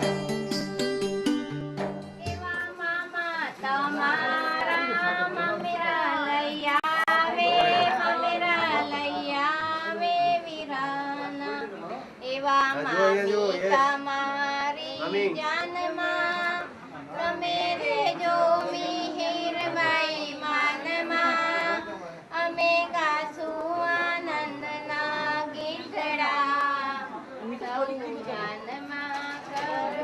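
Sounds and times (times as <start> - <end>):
light music: 0.0 - 2.8
woman singing: 2.2 - 12.8.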